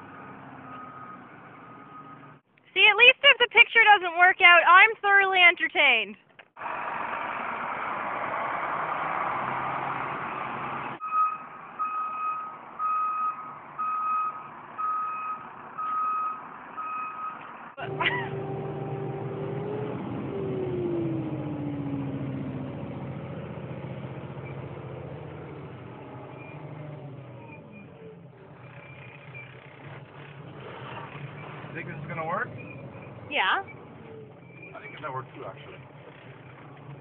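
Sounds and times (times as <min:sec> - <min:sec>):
reversing alarm beeping: 0:00.1 - 0:02.4, 0:11.0 - 0:19.7
diesel truck engine running: 0:06.6 - 0:37.0.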